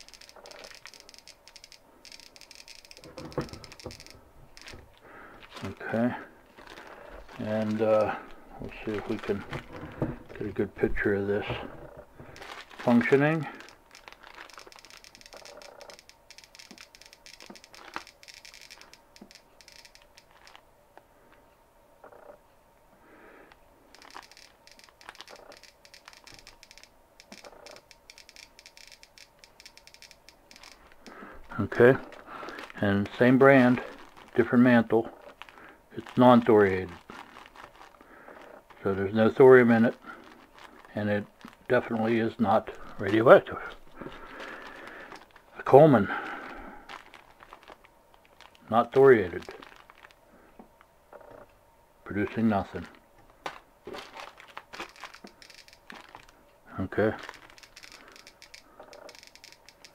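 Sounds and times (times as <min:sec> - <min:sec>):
geiger counter clicking: 0:00.0 - 0:04.8, 0:12.4 - 0:20.6, 0:23.9 - 0:31.2, 0:54.8 - 0:56.2, 0:57.2 - 0:59.9
plastic packet crinkling: 0:00.0 - 0:11.0, 0:12.2 - 0:20.6, 0:24.0 - 0:29.1, 0:29.7 - 0:50.2, 0:52.3 - 0:59.9.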